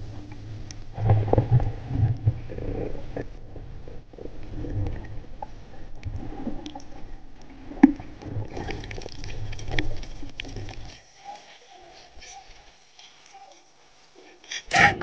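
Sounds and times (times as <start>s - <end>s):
underwater rumbling: 0.0s - 11.0s
underwater clicks and crackles: 0.0s - 14.6s.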